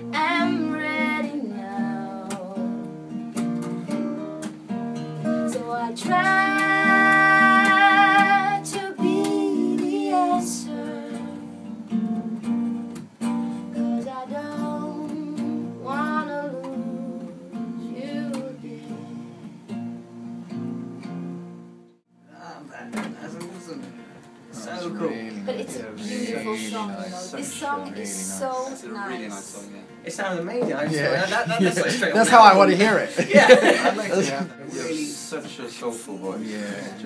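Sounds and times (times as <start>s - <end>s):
woman singing: 0.0s - 2.9s, 5.3s - 11.7s, 13.8s - 19.6s
acoustic guitar and bass: 0.0s - 22.0s, 22.8s - 30.1s.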